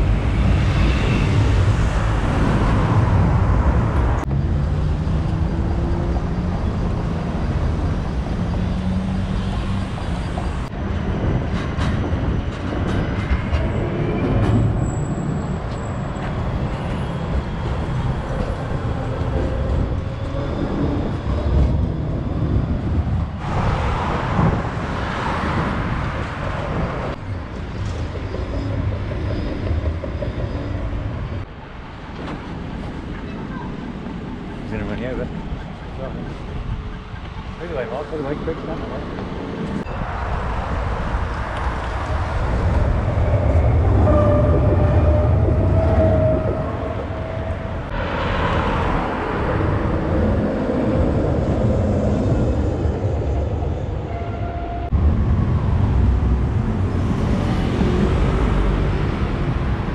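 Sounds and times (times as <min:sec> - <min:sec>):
road traffic: 0:00.0 - 0:59.9
tram wheels rumbling on rails: 0:00.0 - 0:59.9.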